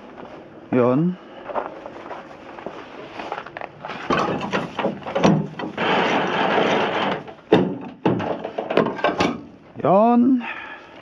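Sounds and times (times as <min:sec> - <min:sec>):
footsteps crunching on snow: 0:00.0 - 0:00.6, 0:01.3 - 0:04.1.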